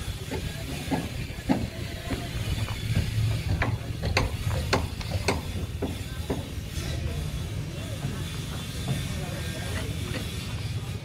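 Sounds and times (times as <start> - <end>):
sharp knocks and taps on wood: 3.5 - 6.5.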